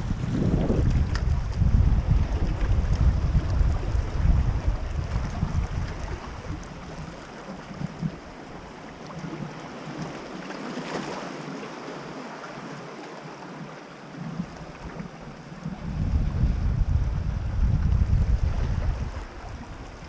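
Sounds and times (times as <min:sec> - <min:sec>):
wind buffeting microphone: 0:00.0 - 0:08.4, 0:14.4 - 0:20.0
waves washing against rocks: 0:00.0 - 0:13.0.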